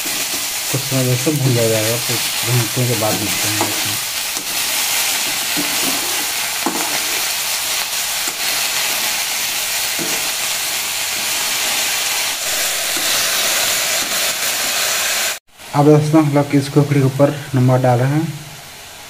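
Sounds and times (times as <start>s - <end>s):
mushrooms sizzling in hot oil: 0.0s - 15.4s
metal spoon scraping: 3.1s - 7.2s.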